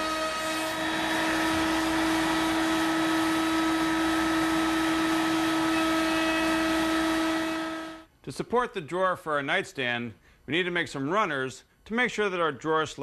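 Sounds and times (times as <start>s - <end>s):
router high whine: 0.0s - 8.1s.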